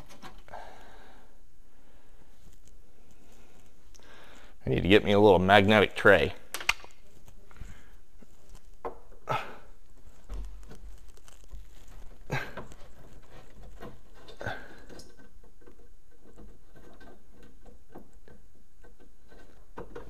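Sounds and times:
sharp clicks: 6.5s - 7.0s.

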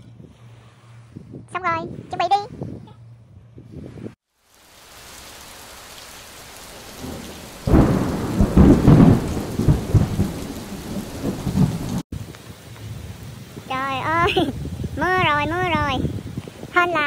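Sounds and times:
heavy rain hissing: 4.3s - 17.0s
thunder clap rumbling: 6.4s - 12.0s.

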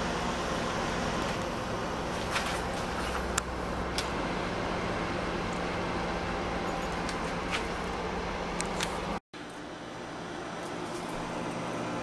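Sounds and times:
microwave hum: 0.0s - 12.0s.

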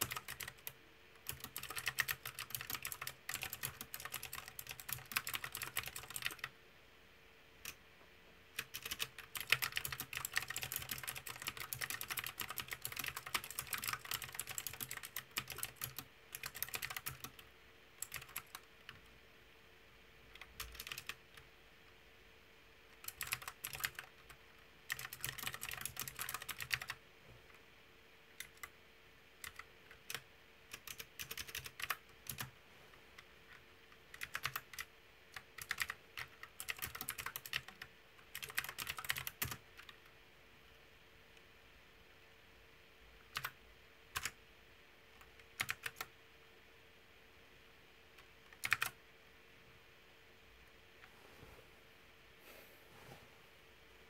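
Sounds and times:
mechanical keyboard typing: 0.0s - 6.5s, 8.6s - 19.0s, 20.3s - 21.5s, 22.9s - 27.0s, 28.4s - 28.8s, 29.4s - 32.5s, 33.5s - 40.0s, 43.3s - 44.4s, 45.2s - 46.1s, 48.2s - 49.0s.

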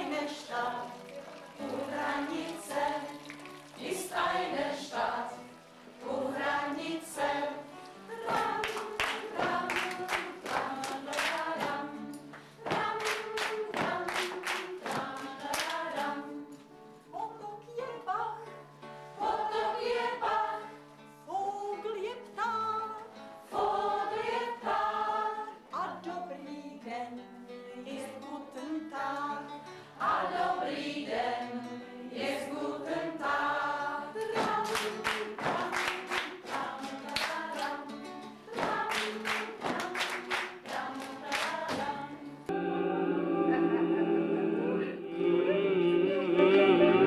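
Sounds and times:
voices singing in chorus: 0.0s - 3.2s, 3.8s - 16.5s, 19.2s - 20.7s, 23.5s - 25.6s, 30.0s - 37.9s, 38.5s - 47.0s
rhythmic claps or percussion: 8.1s - 16.2s, 34.2s - 37.9s, 38.5s - 42.0s.

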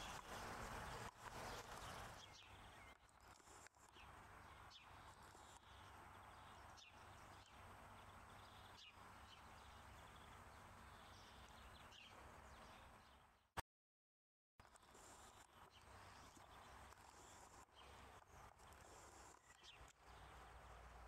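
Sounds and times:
distant bird chirps: 0.0s - 13.4s, 14.8s - 21.0s.

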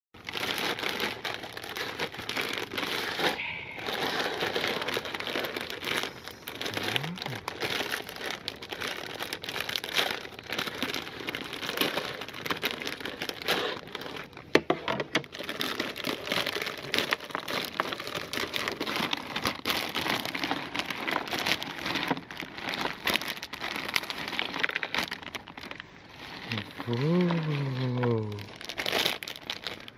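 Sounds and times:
packet tearing open: 0.2s - 14.4s, 15.2s - 29.9s
plastic packets crinkling: 0.2s - 29.9s.

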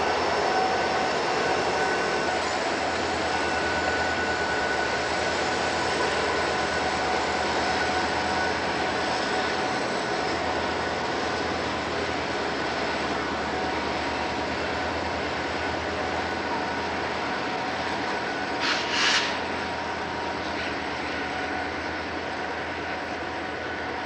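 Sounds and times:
diesel locomotive engine rumble: 0.0s - 24.0s.

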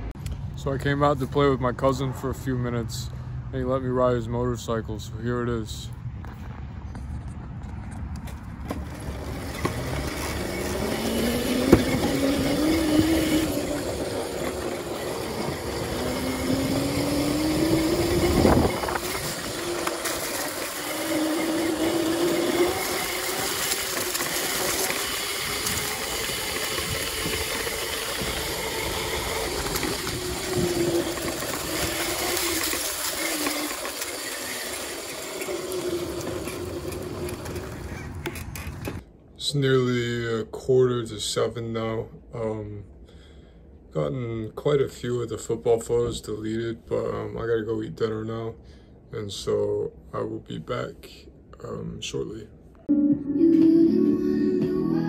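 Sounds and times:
wind rushing over microphone: 6.1s - 20.3s
dirt bike motor accelerating: 7.7s - 39.0s.

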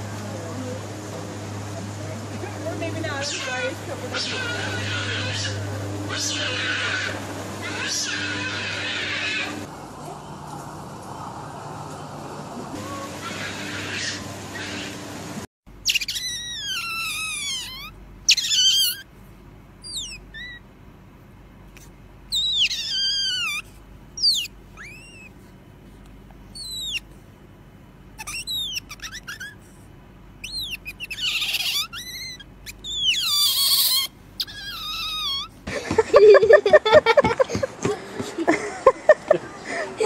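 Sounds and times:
otter chirping squeaks: 15.8s - 19.1s, 19.8s - 20.7s, 22.3s - 25.4s, 26.5s - 27.1s, 28.2s - 29.8s, 30.4s - 35.7s.

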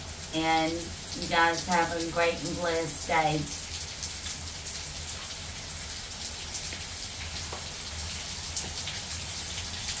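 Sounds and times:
rain falling: 0.0s - 10.0s
raindrops tapping: 6.6s - 9.2s.

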